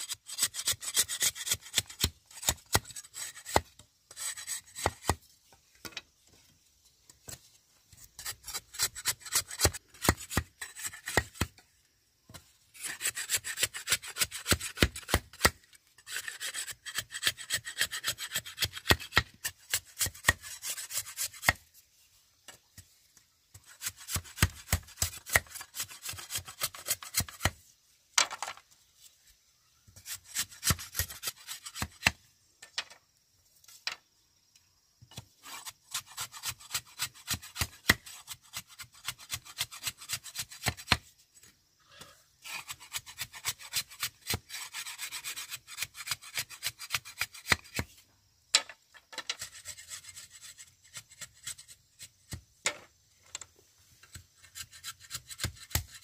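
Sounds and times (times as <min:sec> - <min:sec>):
machete scraping bamboo: 0:00.0 - 0:05.2, 0:07.2 - 0:11.6, 0:12.3 - 0:21.8, 0:23.5 - 0:27.7, 0:29.9 - 0:32.2, 0:35.1 - 0:48.0, 0:49.1 - 0:52.4, 0:54.0 - 0:56.0.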